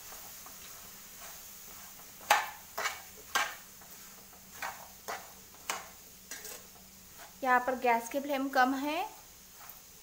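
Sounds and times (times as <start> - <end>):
metal spoon knocking on pan: 2.1 - 3.6.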